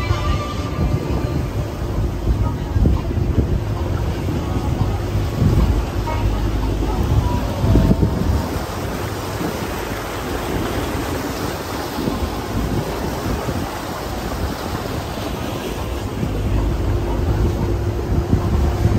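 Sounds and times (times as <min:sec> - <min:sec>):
low rumble: 0:00.0 - 0:11.4, 0:15.3 - 0:18.9
water churning past boat: 0:00.0 - 0:18.9
wind buffeting microphone: 0:00.0 - 0:18.9.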